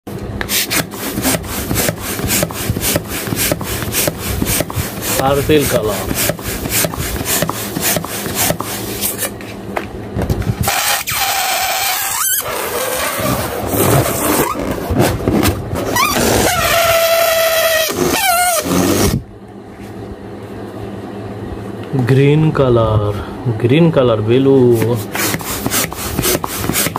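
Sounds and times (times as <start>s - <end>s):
hands rubbing a balloon: 0.4s - 9.3s, 10.6s - 19.2s, 24.8s - 26.9s
balloon neck squealing: 10.6s - 15.1s, 15.8s - 19.2s.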